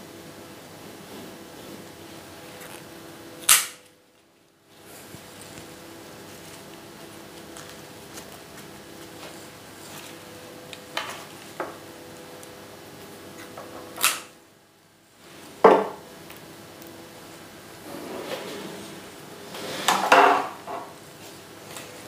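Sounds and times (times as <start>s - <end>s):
snips cutting stems: 3.4s - 3.8s.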